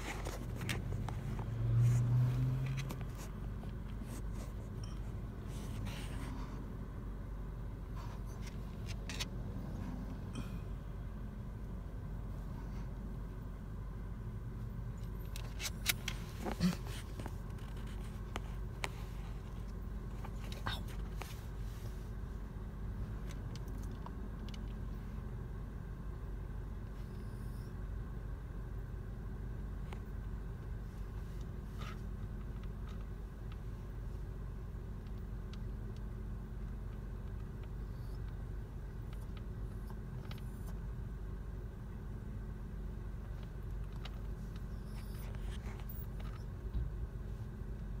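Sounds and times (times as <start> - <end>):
car road and engine rumble: 0.0 - 48.0.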